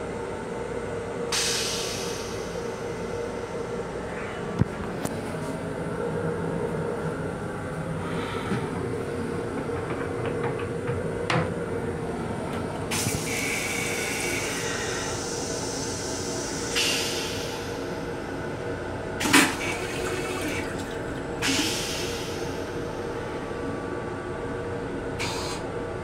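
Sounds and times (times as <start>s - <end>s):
train rumble and hum: 0.0s - 26.0s
toilet flush rush: 12.9s - 17.7s, 19.2s - 22.8s.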